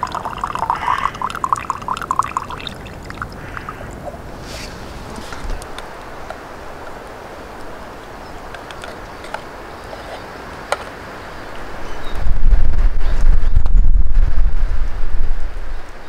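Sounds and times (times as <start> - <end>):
wind hissing in forest: 0.0 - 16.0
wind buffeting microphone: 11.8 - 15.9.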